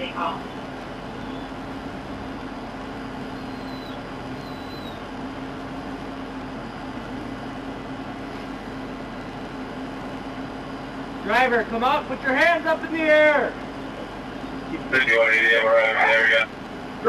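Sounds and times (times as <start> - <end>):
idling vehicle rumble: 0.0 - 17.0
faint high chirps: 1.1 - 1.6, 3.2 - 5.0.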